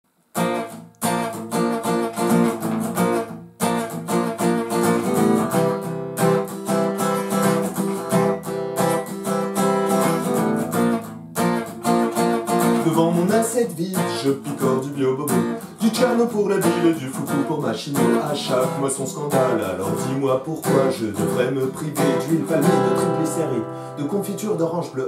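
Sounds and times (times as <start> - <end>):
acoustic guitar strumming: 0.3 - 25.0.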